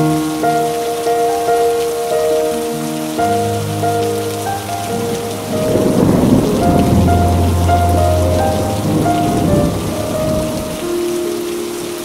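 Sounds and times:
soft music of held notes: 0.0 - 12.0
steady rain falling: 0.0 - 12.0
thunder rumbling: 2.5 - 12.0.

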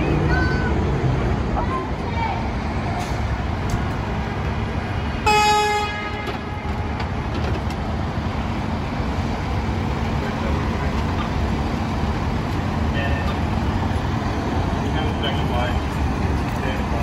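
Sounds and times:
engines and street traffic rumble: 0.0 - 17.0
vehicle horn honk: 5.2 - 6.7.

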